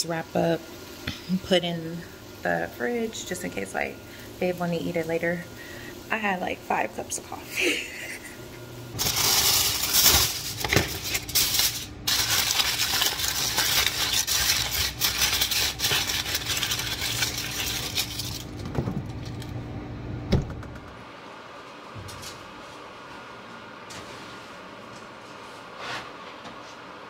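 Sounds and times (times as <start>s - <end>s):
aluminium foil crinkling: 9.0s - 19.4s.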